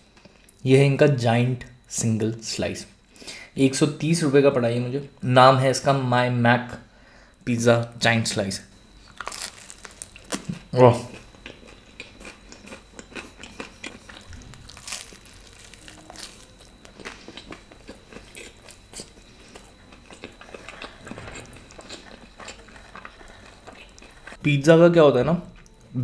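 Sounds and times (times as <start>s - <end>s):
crust crunching: 9.0s - 24.4s
chewing food: 9.1s - 24.4s.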